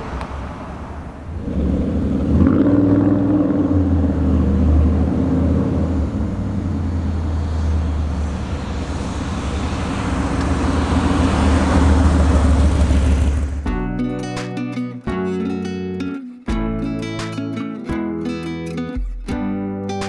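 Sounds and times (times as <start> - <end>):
truck engine exhaust rumble: 0.0 - 13.7.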